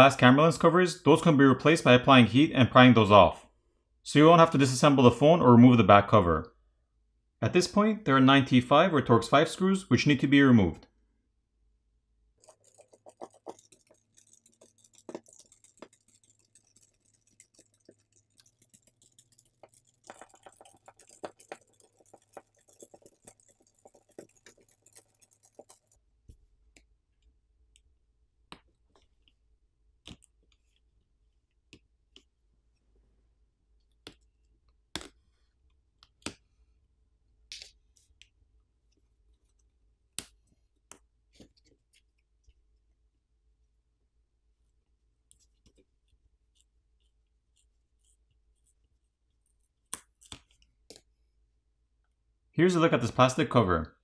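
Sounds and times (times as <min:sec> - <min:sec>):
screwdriver clicking and scraping: 0:12.4 - 0:26.0, 0:45.3 - 0:51.1.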